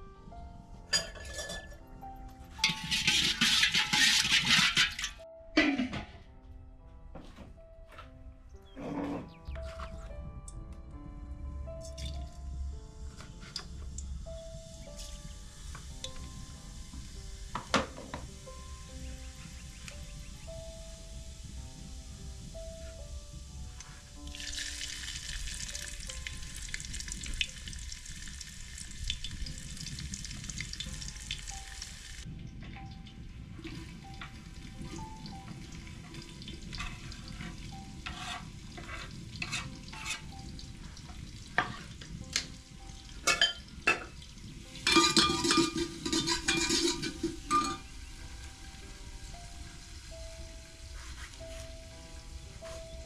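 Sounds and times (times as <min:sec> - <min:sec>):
ladle stirring in pot: 0:02.6 - 0:05.2, 0:36.1 - 0:40.6, 0:41.6 - 0:42.5, 0:44.8 - 0:47.9
spices sizzling in hot oil: 0:14.2 - 0:32.3, 0:32.9 - 0:53.0
onion sizzling in oil: 0:14.6 - 0:32.3.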